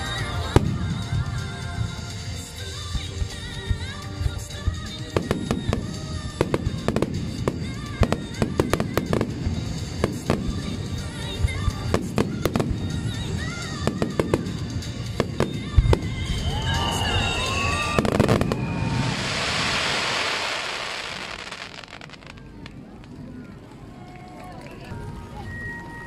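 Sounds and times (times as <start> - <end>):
hissing firework crackle: 0.0 - 23.3
falling firework whistle: 15.2 - 22.5.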